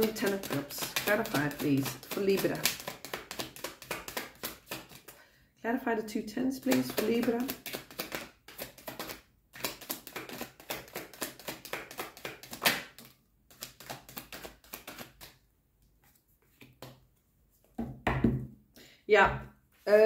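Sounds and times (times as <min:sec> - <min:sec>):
cards being shuffled: 0:00.0 - 0:05.2, 0:06.6 - 0:17.8.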